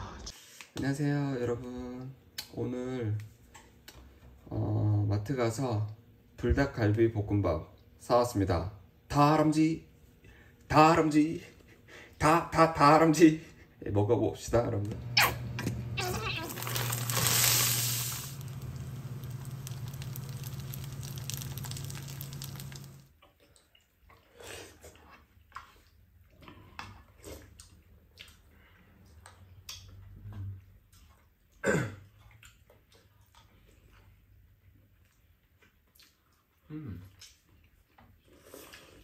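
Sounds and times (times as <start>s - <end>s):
low hum: 14.9s - 23.1s
eating sounds: 16.0s - 39.0s
rice sizzling in a frying pan: 16.4s - 23.1s.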